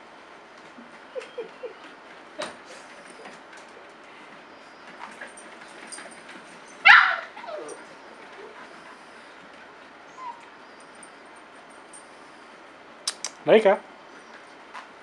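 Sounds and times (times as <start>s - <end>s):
dog yelping: 6.8s - 8.6s, 10.1s - 10.8s
faint dog squeak: 10.1s - 10.5s.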